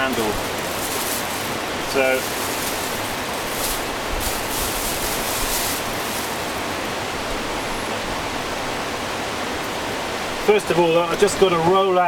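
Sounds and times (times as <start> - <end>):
plastic sheet rustling: 0.0 - 6.9
steady hiss: 0.0 - 12.0.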